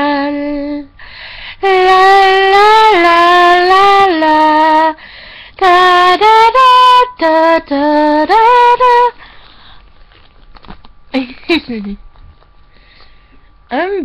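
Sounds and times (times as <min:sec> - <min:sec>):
girl singing unaccompanied: 0:00.0 - 0:01.0, 0:01.6 - 0:05.0, 0:05.6 - 0:09.2.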